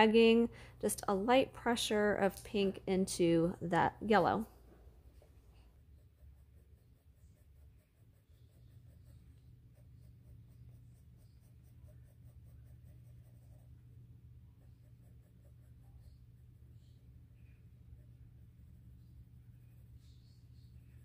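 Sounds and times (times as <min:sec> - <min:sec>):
low steady hum: 0:00.0 - 0:21.0
pencil scratching on paper: 0:05.5 - 0:21.0.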